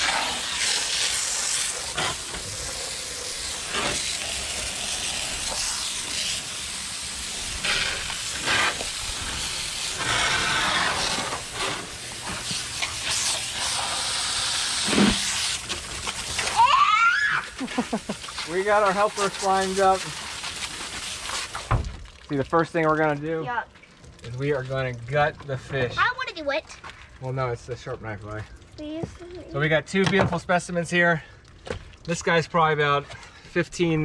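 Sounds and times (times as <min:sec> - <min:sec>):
hose spraying water: 0:00.0 - 0:23.6.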